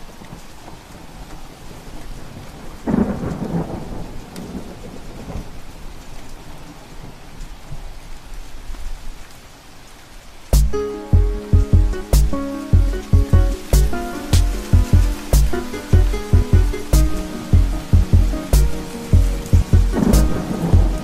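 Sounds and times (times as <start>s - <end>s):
steady rain: 0.0s - 21.0s
rumble of thunder: 1.7s - 6.0s, 14.7s - 21.0s.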